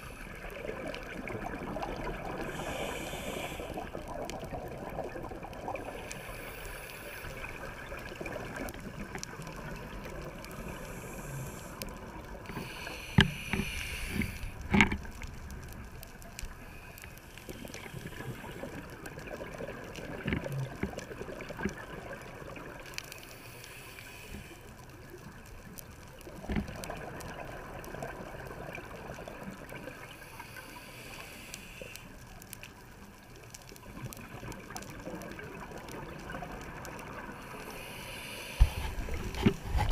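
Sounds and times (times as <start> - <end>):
underwater ambience: 0.0 - 39.9
scuba exhaust bubbles rushing: 0.3 - 6.1.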